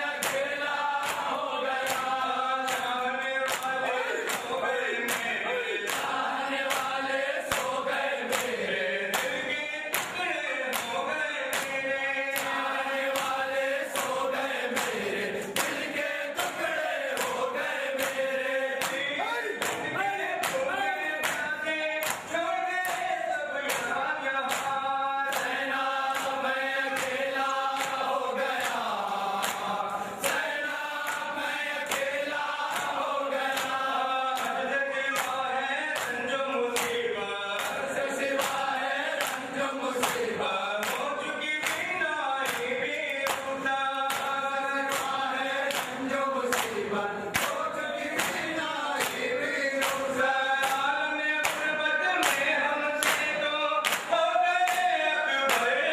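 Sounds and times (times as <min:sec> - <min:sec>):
men chanting in unison: 0:00.0 - 0:55.9
hand slaps: 0:00.2 - 0:12.6, 0:18.8 - 0:25.6, 0:26.9 - 0:28.8, 0:29.4 - 0:31.3, 0:31.9 - 0:33.8, 0:44.0 - 0:54.9.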